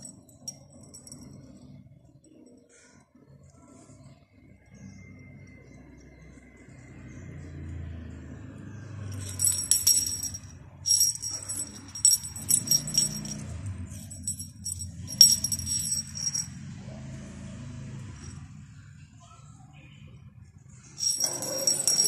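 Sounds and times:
small bell jingling: 0.0s - 1.6s, 9.1s - 16.6s, 21.0s - 22.0s.

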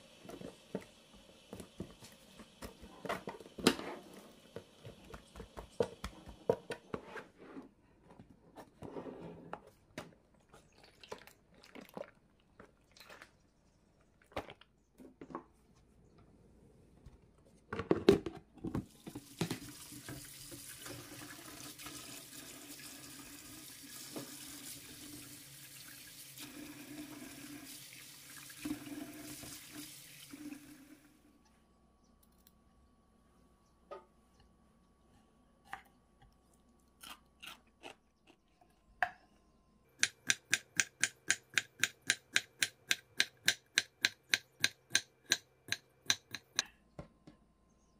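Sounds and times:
kitchen tap running: 18.9s - 31.1s.

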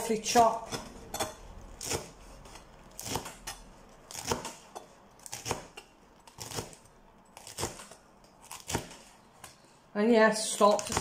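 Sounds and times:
knife slicing cabbage on plastic board: 1.7s - 9.1s, 10.5s - 11.0s.

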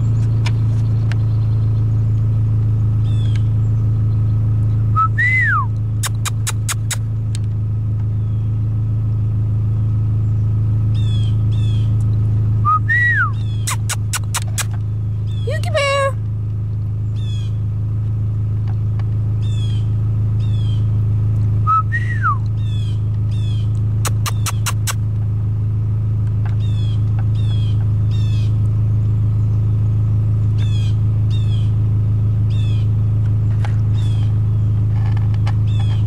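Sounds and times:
small birds chirping: 0.0s - 8.8s, 9.6s - 25.2s, 26.2s - 36.0s
steady low hum: 0.0s - 36.0s
quick clicks: 6.0s - 7.5s, 13.6s - 14.9s, 24.0s - 25.0s
rising and falling call: 12.6s - 16.2s, 21.6s - 25.0s.

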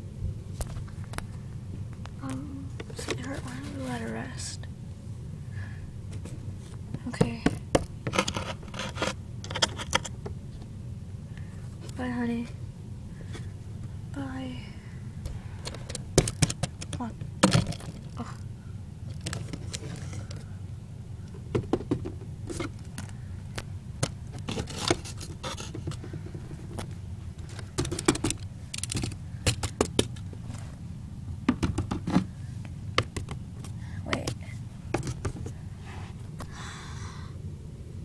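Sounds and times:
steady low hum: 0.0s - 38.0s
plastic toys clicking and scraping: 8.1s - 10.2s, 15.6s - 18.4s, 19.1s - 20.4s, 24.0s - 30.3s.

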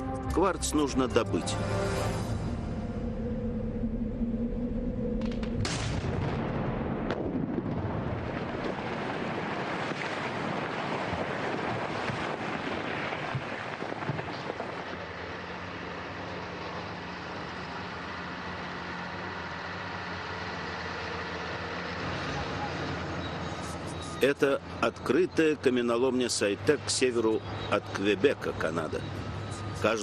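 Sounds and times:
heavy machinery droning: 0.0s - 7.8s
rumble of rock and debris: 5.1s - 17.0s
blast crack: 5.2s - 10.0s.

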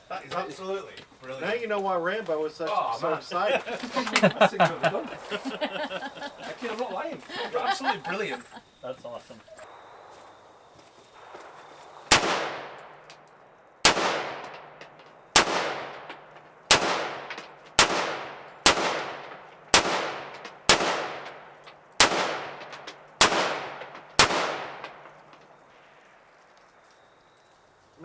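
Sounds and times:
rifle shots with echo: 11.2s - 26.0s.

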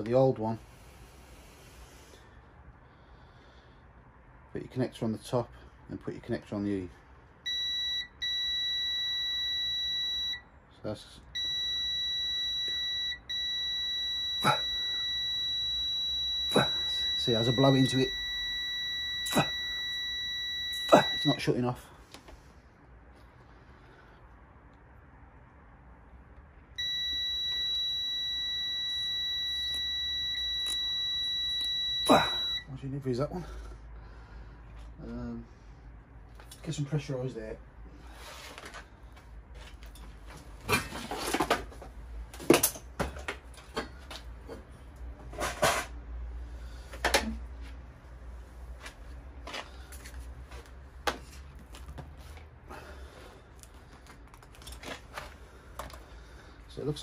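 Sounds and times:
steady high beep: 7.5s - 10.4s, 11.4s - 21.5s, 26.8s - 32.7s
knocks and rattles of handled tools: 39.5s - 46.0s.

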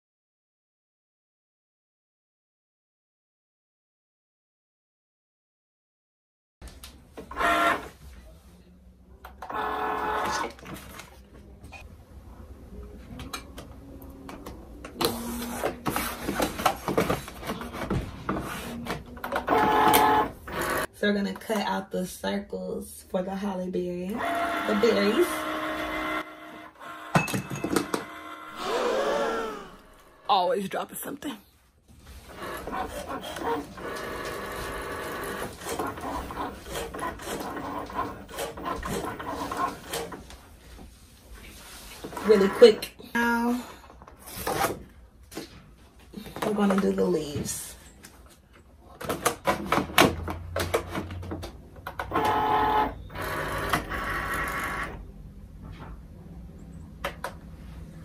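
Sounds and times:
cutting machine motors whirring: 19.5s - 20.9s, 24.2s - 30.3s.

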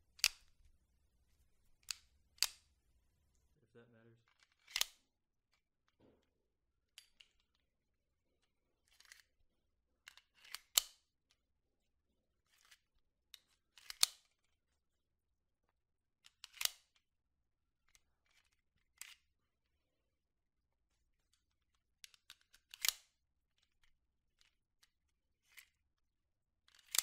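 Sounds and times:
pistol action metal clicks: 0.2s - 0.5s, 1.8s - 2.7s, 4.6s - 5.0s, 10.4s - 11.0s, 13.8s - 14.3s, 16.4s - 16.9s, 22.7s - 23.1s, 26.7s - 27.0s.

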